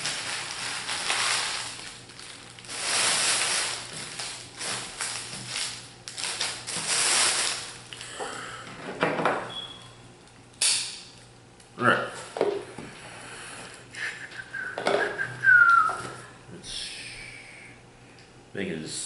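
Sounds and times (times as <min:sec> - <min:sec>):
foil wrappers crinkling: 0:00.0 - 0:08.2.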